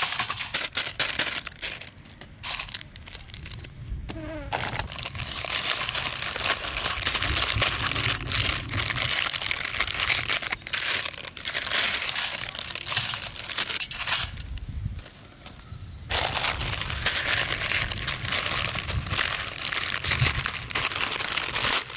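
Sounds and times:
plastic packet crinkling: 0.0 - 3.8, 4.5 - 14.6, 16.1 - 21.9.

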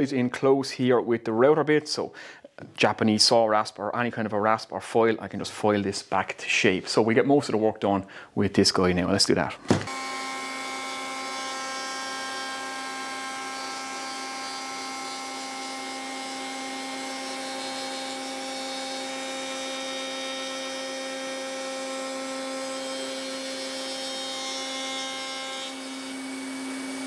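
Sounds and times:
router whining: 9.6 - 27.0.

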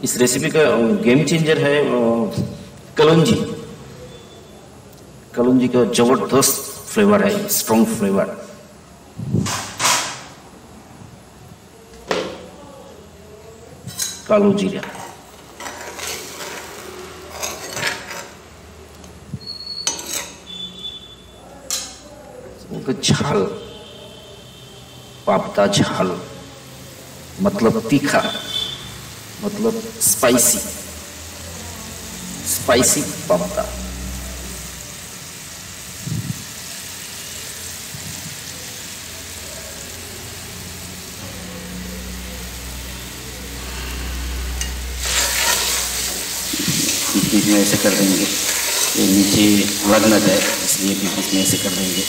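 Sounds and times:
gravy bubbling and sizzling in a pan: 14.8 - 21.9, 26.7 - 52.0
spatula scraping thick gravy in pan: 15.0 - 18.4, 45.0 - 47.1, 48.2 - 49.1.

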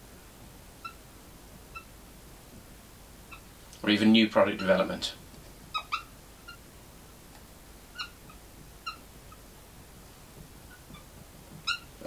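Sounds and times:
marker squeaking on whiteboard: 0.8 - 1.1, 1.7 - 2.0, 3.3 - 3.5, 4.5 - 4.9, 5.6 - 6.7, 7.9 - 9.5, 10.3 - 12.0.

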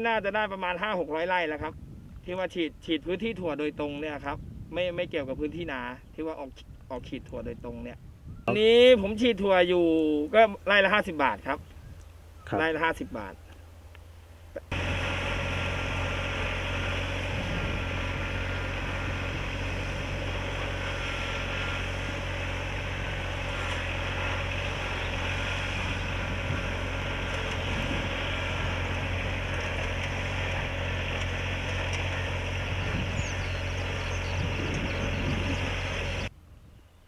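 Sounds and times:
sprayer engine humming: 13.5 - 36.3.

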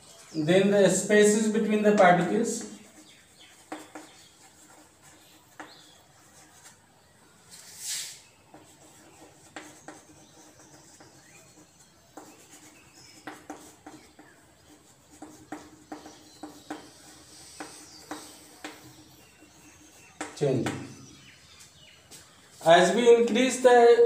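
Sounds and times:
chalk tapping and scratching: 0.1 - 6.9, 7.5 - 23.6
short hiss: 7.8 - 8.2.

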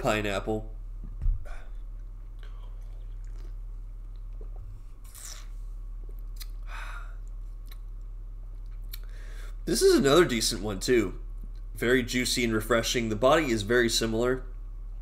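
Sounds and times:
low steady hum: 0.0 - 15.0
person sipping and swallowing: 1.4 - 6.6
lip smacks: 1.4 - 9.1
soft breaths out: 9.0 - 9.6.

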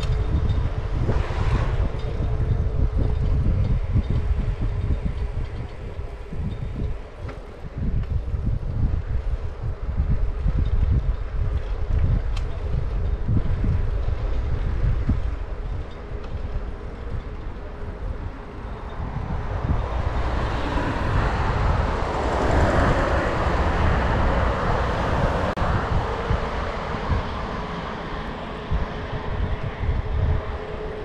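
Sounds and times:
tyres rolling on asphalt: 0.0 - 31.0
wind buffeting microphone: 0.0 - 31.0
broad rushing sound: 0.6 - 4.6, 18.8 - 30.6.

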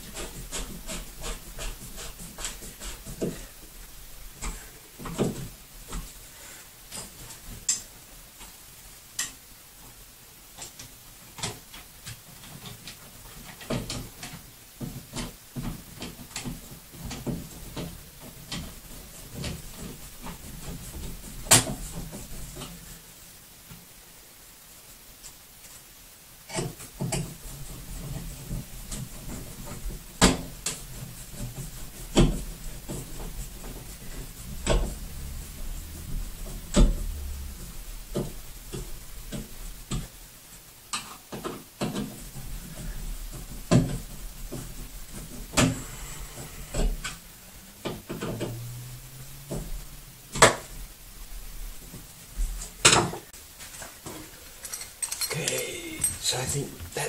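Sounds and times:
hands rubbing hardware: 0.0 - 3.8, 26.5 - 40.2, 53.6 - 57.0
hardware clicks and knocks: 54.0 - 57.0.

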